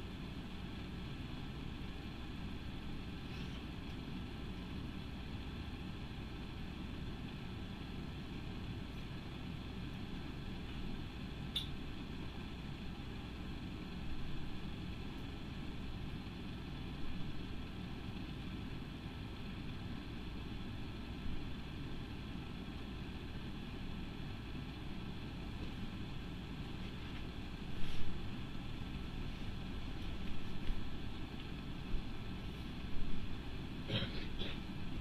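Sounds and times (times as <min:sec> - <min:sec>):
low background hum and rumble: 0:00.0 - 0:35.0.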